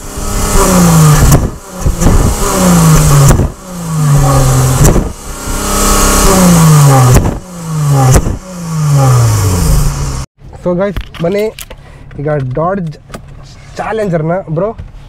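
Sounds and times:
car engine revving: 0.0 - 10.3
exhaust snap: 0.0 - 10.3.

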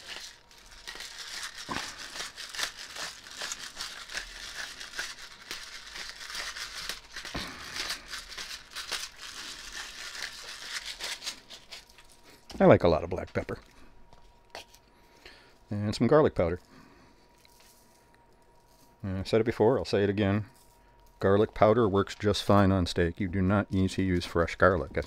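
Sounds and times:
pepper grinder crackling: 0.0 - 12.3.

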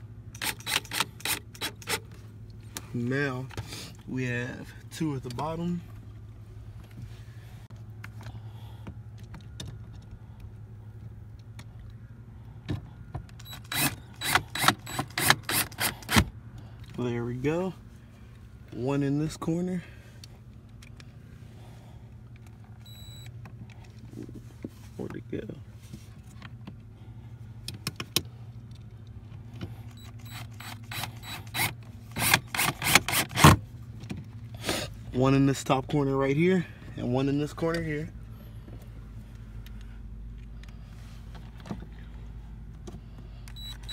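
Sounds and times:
steady low hum: 0.0 - 43.9
cordless drill driving screw: 0.4 - 2.0, 13.5 - 16.3, 29.9 - 33.6.

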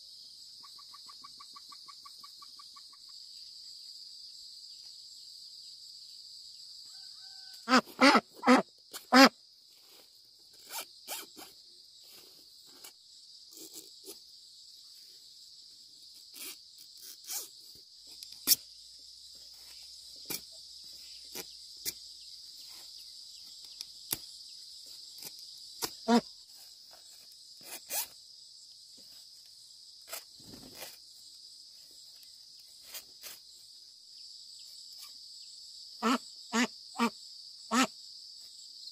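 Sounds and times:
insect chorus: 0.0 - 38.9.

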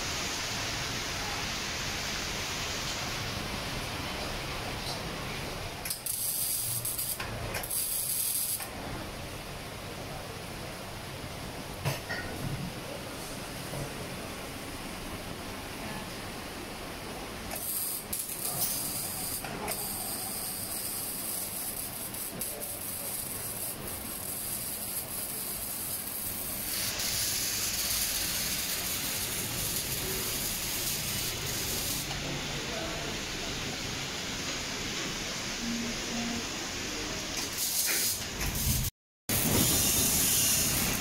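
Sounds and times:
arc welding hiss: 5.8 - 8.7, 17.5 - 32.3, 37.4 - 41.0
sharp welding clicks: 5.8 - 8.7, 17.5 - 32.1.

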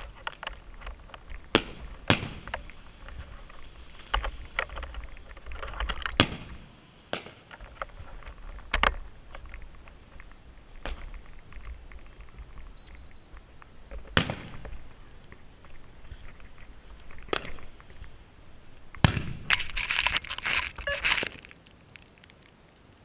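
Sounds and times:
firework crackling: 0.0 - 23.0
firework bangs: 1.4 - 3.0, 6.1 - 7.6, 14.0 - 16.1, 16.7 - 18.3, 18.9 - 19.9.

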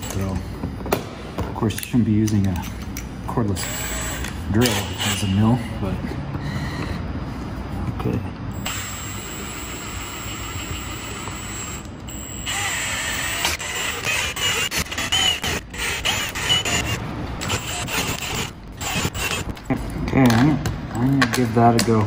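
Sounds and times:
cordless drill grinding metal: 3.6 - 5.3, 8.6 - 19.5.

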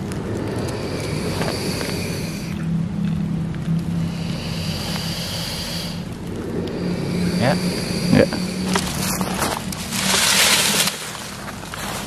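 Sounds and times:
snake hissing: 0.0 - 2.8, 3.8 - 11.4
steady low hum: 0.0 - 12.0.

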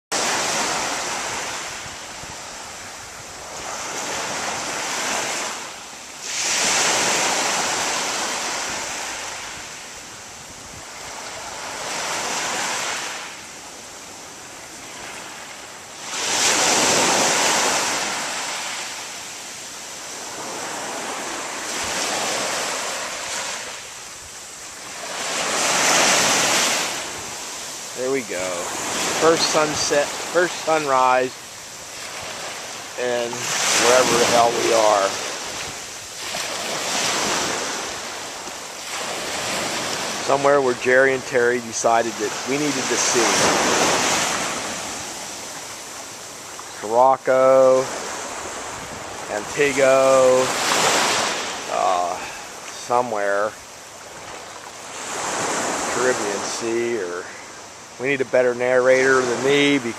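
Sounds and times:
large waves breaking: 0.1 - 59.9
surf washing up beach: 0.1 - 59.9.

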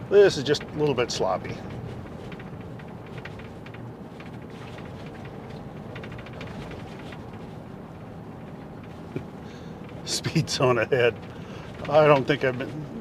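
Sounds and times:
tyres rumbling on gravel road: 0.0 - 13.0
grit ticking against vehicle body: 0.2 - 12.8.

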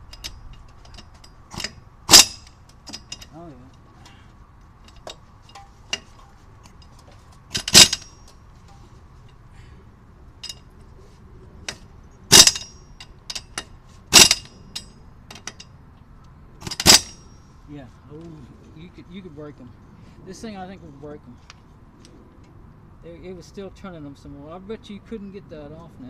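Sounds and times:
air impact wrench rattle: 0.0 - 3.4, 7.5 - 8.3, 12.3 - 15.6, 16.6 - 17.4.

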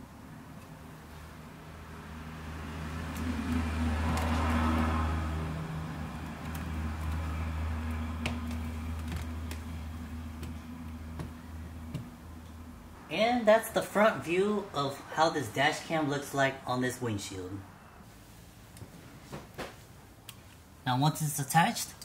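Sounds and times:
steady low hum: 0.0 - 16.7.

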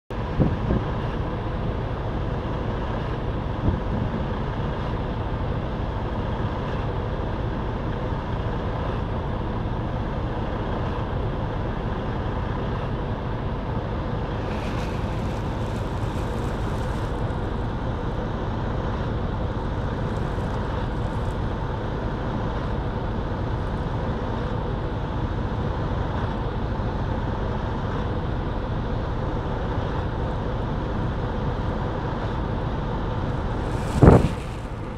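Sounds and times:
car road and engine noise: 0.1 - 34.9
brief hiss: 33.6 - 34.9.

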